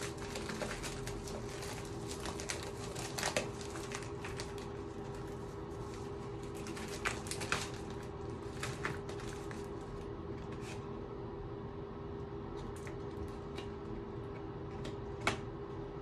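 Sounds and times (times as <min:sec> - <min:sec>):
plastic mailer crinkling and rustling: 0:00.0 - 0:10.9
steady low hum: 0:00.0 - 0:16.0.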